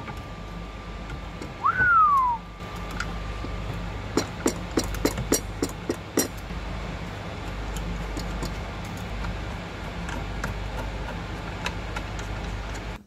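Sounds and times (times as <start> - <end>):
steady low hum: 0.0 - 13.0
sharp metal clicks: 2.6 - 6.6.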